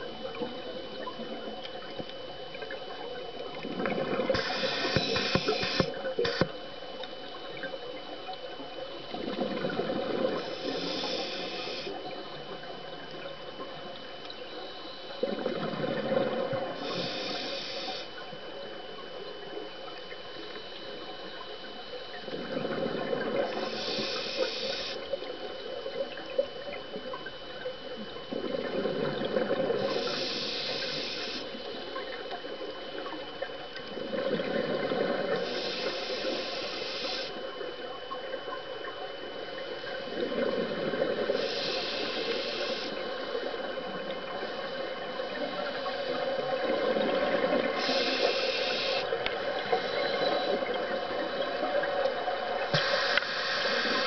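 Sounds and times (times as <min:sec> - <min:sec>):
diver breathing through regulator: 0:04.4 - 0:06.4, 0:10.4 - 0:12.0, 0:16.8 - 0:18.2, 0:23.5 - 0:25.0, 0:29.8 - 0:31.6, 0:35.3 - 0:37.4, 0:41.2 - 0:43.2, 0:47.7 - 0:50.6, 0:52.7 - 0:54.0
short hiss: 0:04.4 - 0:06.4, 0:52.7 - 0:54.0
bubbling: 0:15.2 - 0:18.0, 0:18.6 - 0:54.0.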